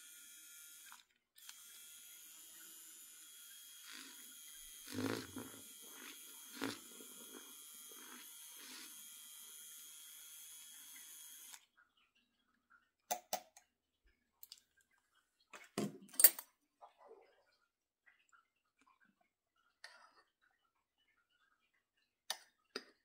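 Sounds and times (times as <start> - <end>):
milk frother whining: 0.0 - 11.6
frother clicking on counter: 3.5 - 9.1
milk sloshing: 3.8 - 9.1.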